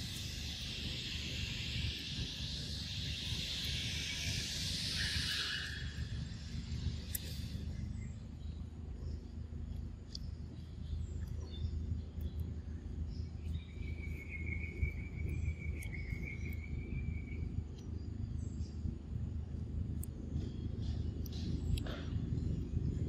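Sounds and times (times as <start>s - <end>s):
insect buzzing: 0.0s - 7.7s
low outdoor rumble: 0.0s - 23.0s.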